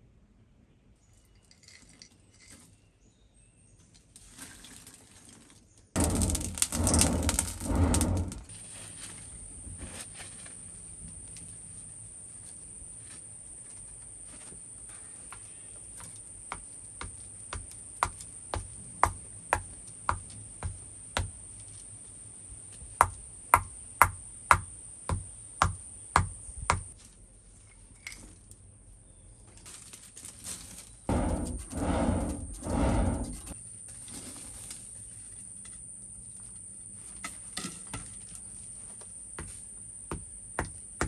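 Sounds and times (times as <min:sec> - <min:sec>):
hammer blows on iron: 0:31.1 - 0:33.6.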